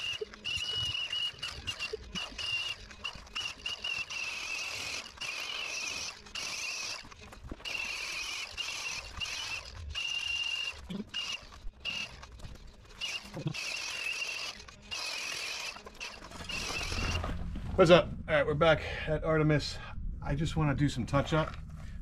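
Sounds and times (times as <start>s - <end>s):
angle grinder wire wheel whining: 0.0s - 17.5s.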